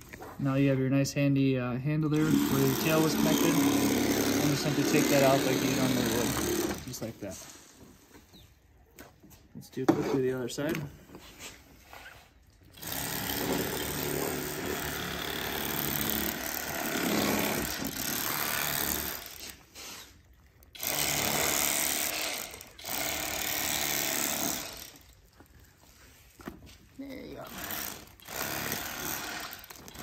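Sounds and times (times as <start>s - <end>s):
electric fillet knife buzzing: 2.2s - 6.9s, 12.8s - 19.6s, 20.8s - 25.0s, 27.4s - 30.0s.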